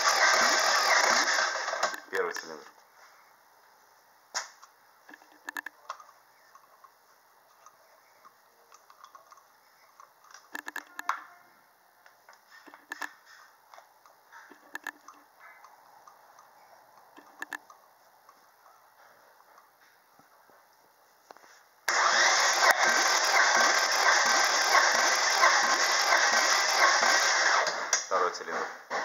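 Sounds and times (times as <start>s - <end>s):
sharp metallic clicks: 7.6s - 11.1s, 14.0s - 18.4s.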